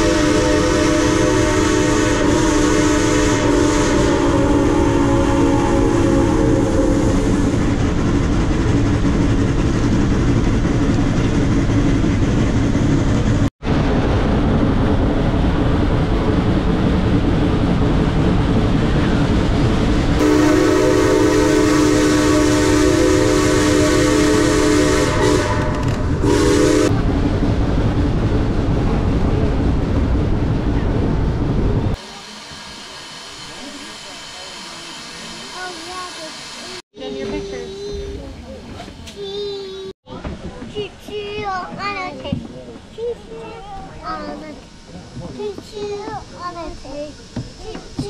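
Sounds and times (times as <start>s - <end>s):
steam whistle blasts: 0.0s - 7.5s, 20.2s - 26.9s
steam train running: 0.0s - 48.0s.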